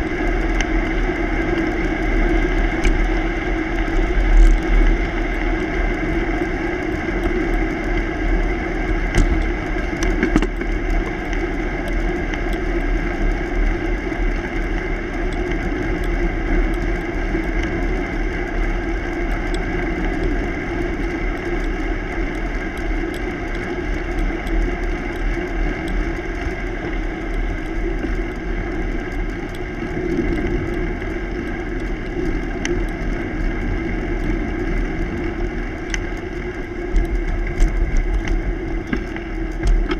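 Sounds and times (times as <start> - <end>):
wind rumble: 0.0 - 39.9.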